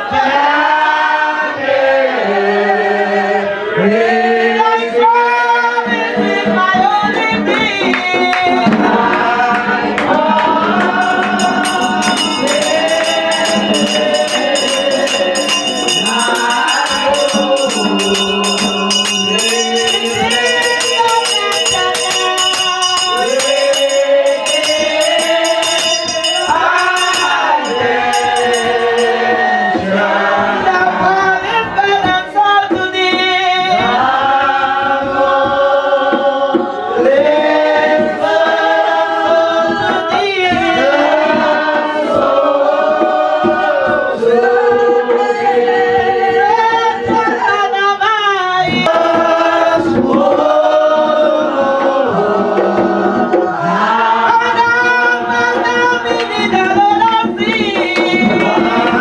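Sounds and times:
congregation singing a hymn: 0.0s - 59.0s
handbell ringing: 10.8s - 29.7s.

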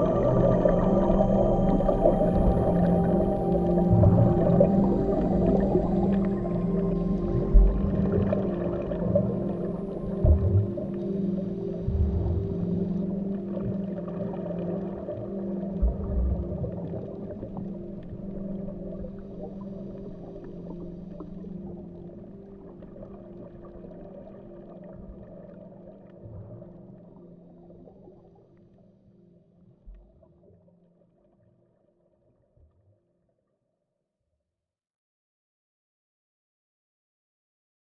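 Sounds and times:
rumbling crackling texture: 0.0s - 10.9s
low drone tones: 0.0s - 28.1s
soft low thumps: 3.6s - 6.4s, 7.2s - 8.4s, 10.0s - 10.9s, 11.8s - 12.8s, 15.8s - 16.9s.

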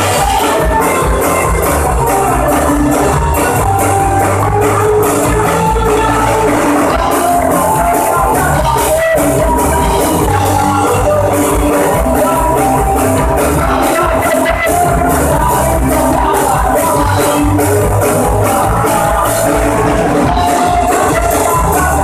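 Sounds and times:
bass guitar: 0.0s - 22.0s
drum kit with cymbals: 0.0s - 22.0s
electric guitars: 0.0s - 22.0s.

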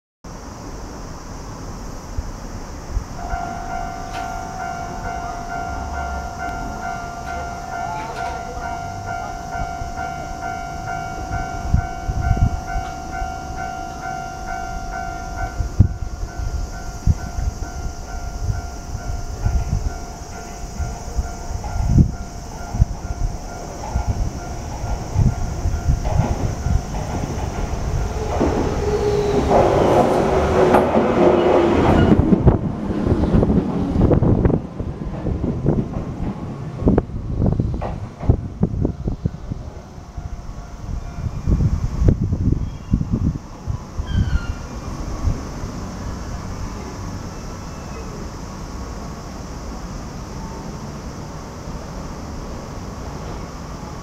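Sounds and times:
electric train whine and rumble: 0.3s - 54.0s
level crossing warning bell: 3.2s - 32.3s
train wheels clacking over rail joints: 5.8s - 9.2s, 20.4s - 37.0s, 37.7s - 39.0s.

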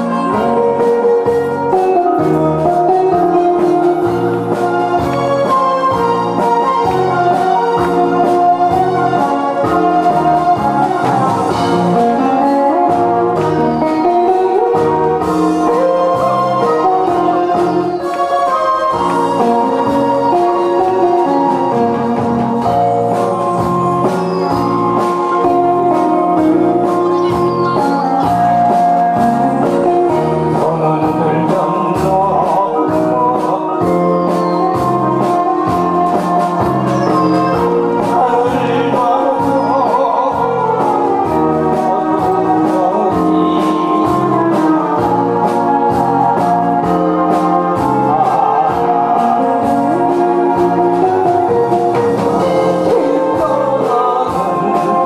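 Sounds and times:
backing track with steady beat: 0.0s - 55.0s
man singing into microphone: 29.5s - 51.6s, 52.4s - 55.0s.

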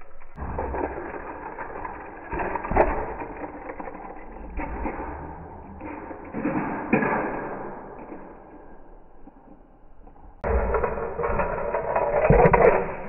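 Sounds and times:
scraping clatter: 0.1s - 9.3s, 10.4s - 13.0s.

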